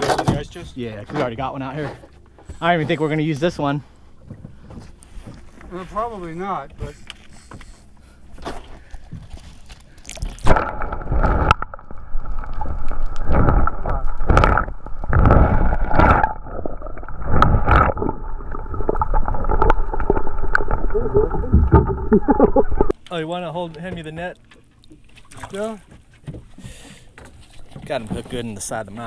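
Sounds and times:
muffled underwater sloshing and gurgling: 1.9s - 23.0s.

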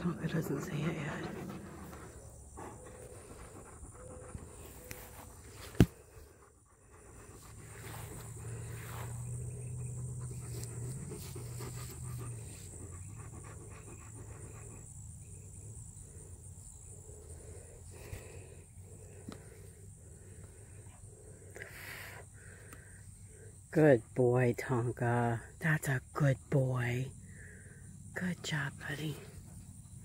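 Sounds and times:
dog panting: 0.0s - 15.1s
insects droning: 0.0s - 30.0s.

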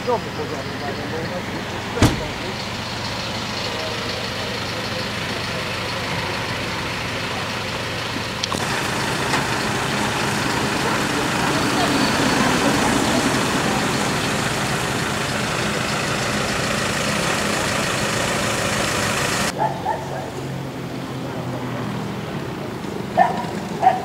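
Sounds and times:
vehicles idling: 0.0s - 24.0s
floodwater rushing: 8.5s - 19.5s.

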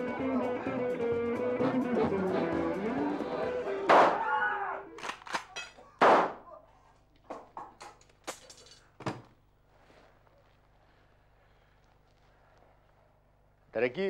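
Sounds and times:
rifle gunshot: 6.0s - 6.4s.

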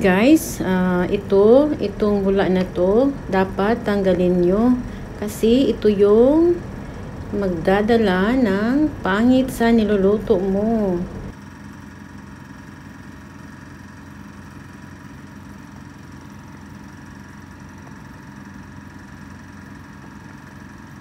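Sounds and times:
broth boiling hard: 0.0s - 11.3s
steady hum with faint whine: 0.0s - 21.0s.

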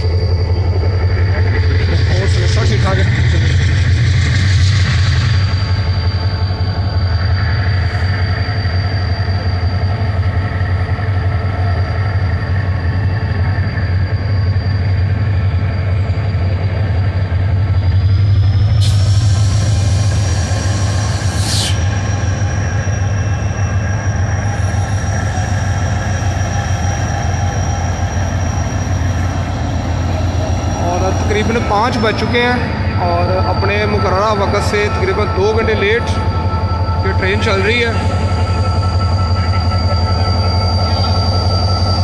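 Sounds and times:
locomotive engine droning: 0.0s - 42.0s
loud hissing: 18.8s - 35.1s.

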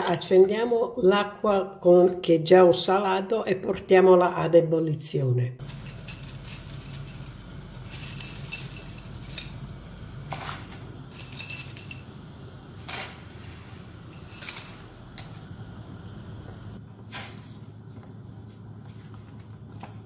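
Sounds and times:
low rumble of heating water: 5.6s - 17.0s
metallic clinks of pots: 11.1s - 12.2s.

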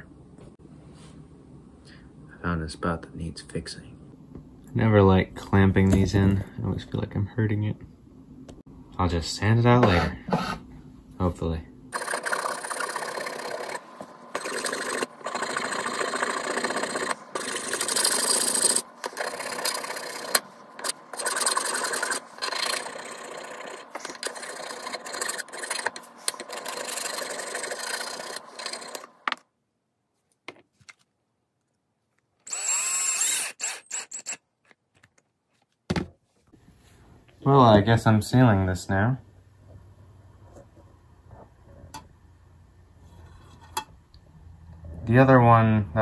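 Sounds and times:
power drill running in bursts: 32.5s - 34.4s.

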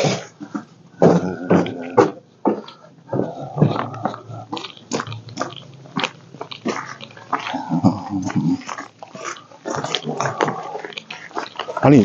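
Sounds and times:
footsteps crunching on gravel and snow: 2.5s - 12.0s.

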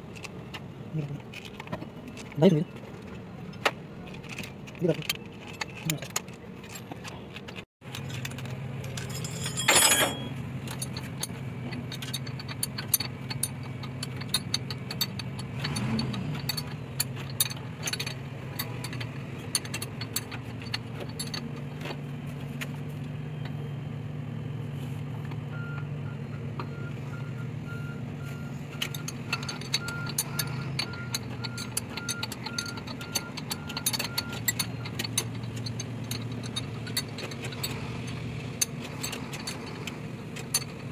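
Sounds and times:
spanner clinking on metal: 4.0s - 22.0s, 28.7s - 40.9s
low engine hum: 6.4s - 40.9s.

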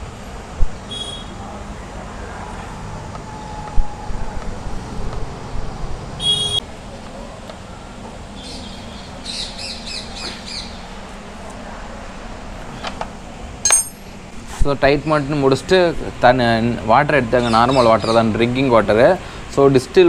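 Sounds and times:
spanner clicking against metal: 13.7s - 14.0s.

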